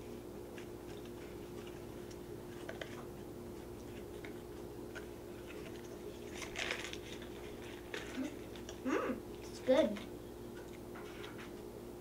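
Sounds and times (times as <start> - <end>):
child chewing: 0.5 - 9.7.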